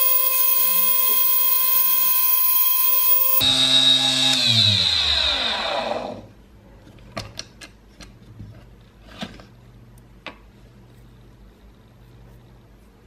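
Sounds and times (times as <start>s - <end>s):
lathe motor whining: 0.0s - 3.4s.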